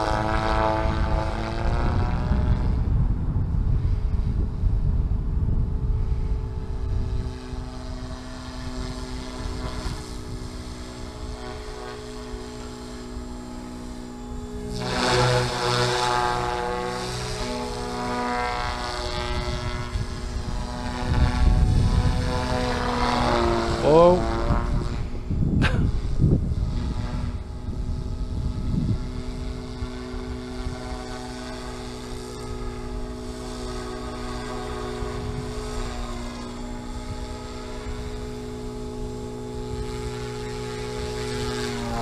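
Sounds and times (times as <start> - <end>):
rc helicopter motor whine: 0.0 - 42.0.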